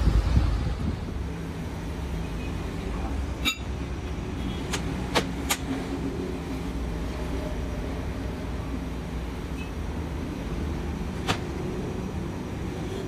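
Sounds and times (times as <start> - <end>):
low workshop hum: 0.0 - 13.0.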